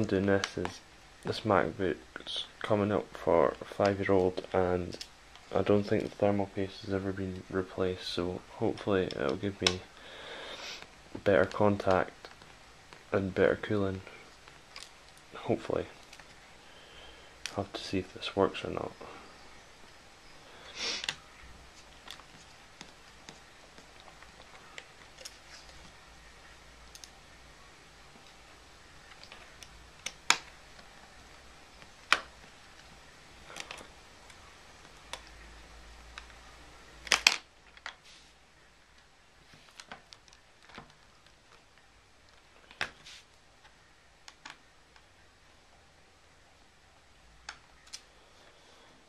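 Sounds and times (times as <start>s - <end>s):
scraping rustle: 37.8s - 38.4s, 42.6s - 43.4s.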